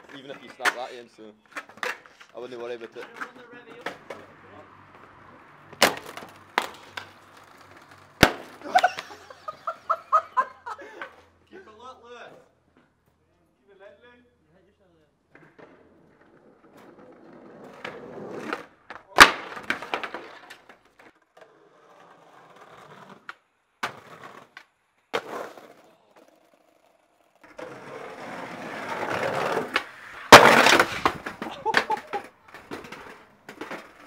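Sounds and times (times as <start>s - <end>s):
skateboard knocking and slapping: 0.0s - 11.2s, 15.3s - 34.0s
skateboard wheels rolling on pavement: 0.0s - 13.2s, 15.2s - 34.0s
skater crashing onto brick paving: 5.7s - 11.2s, 16.4s - 34.0s.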